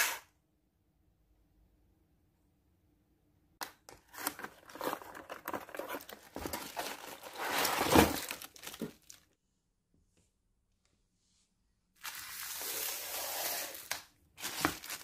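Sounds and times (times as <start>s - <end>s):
plastic crinkling: 4.0s - 9.4s, 12.0s - 13.0s, 13.7s - 15.0s
cardboard scraping: 4.1s - 9.2s, 12.1s - 15.0s.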